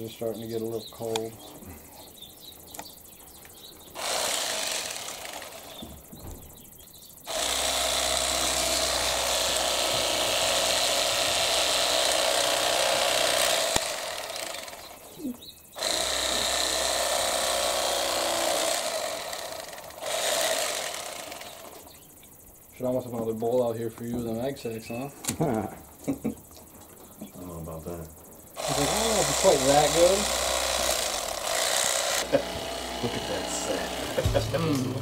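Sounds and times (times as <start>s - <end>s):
electric fillet knife running: 4.0s - 5.8s, 7.3s - 15.2s, 15.8s - 21.9s, 28.6s - 35.0s.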